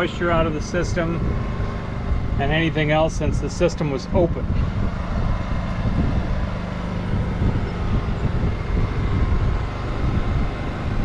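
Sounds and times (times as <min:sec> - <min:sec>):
electric vacuum pump running: 0:00.0 - 0:11.0
portable generator running: 0:00.0 - 0:11.0.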